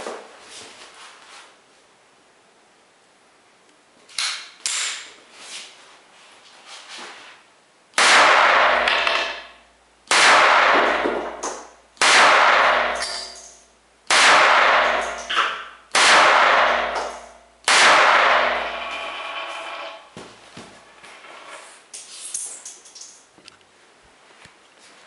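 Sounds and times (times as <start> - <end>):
pistol shots ringing: 8.0 - 13.5, 14.1 - 18.8.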